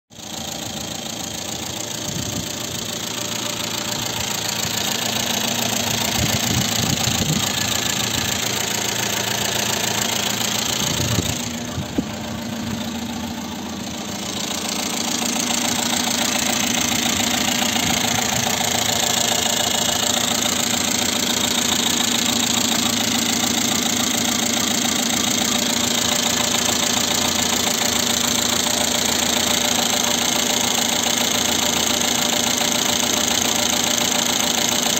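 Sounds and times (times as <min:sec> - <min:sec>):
petrol engine idling: 0:00.1 - 0:34.9.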